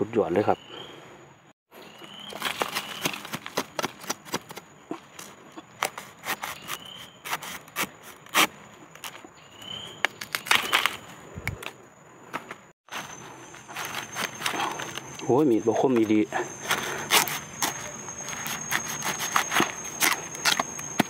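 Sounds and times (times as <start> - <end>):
dry leaves cracking and crackling: 2.0 - 4.4
faint high insect drone: 8.5 - 21.0.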